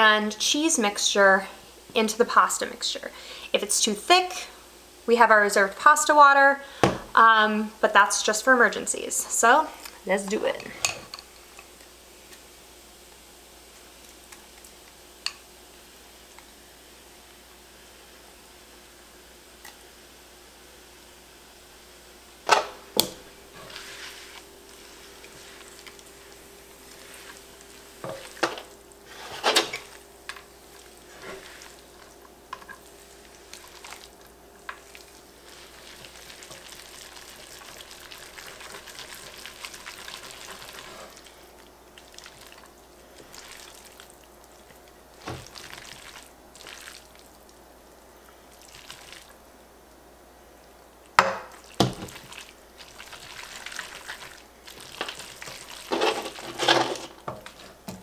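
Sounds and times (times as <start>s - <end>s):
faint sizzle: 0.0s - 58.0s
noodles stirred in pan: 22.9s - 49.5s, 51.4s - 58.0s.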